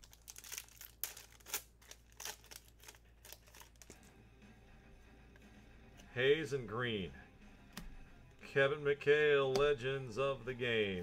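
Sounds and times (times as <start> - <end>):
card wrappers crinkling: 0.0 - 4.1.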